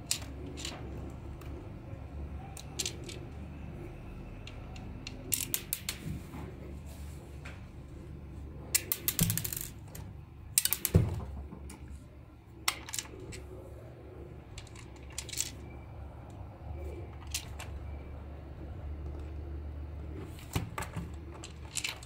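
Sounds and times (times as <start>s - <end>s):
plastic toy being handled: 0.0s - 1.5s, 2.6s - 3.3s, 14.5s - 15.8s, 16.9s - 17.8s, 20.2s - 22.0s.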